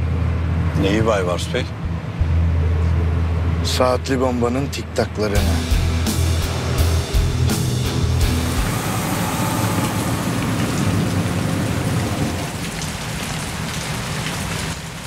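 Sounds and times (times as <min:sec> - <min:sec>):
low rumble: 0:05.4 - 0:12.5
rain on pavement and car: 0:08.5 - 0:15.0.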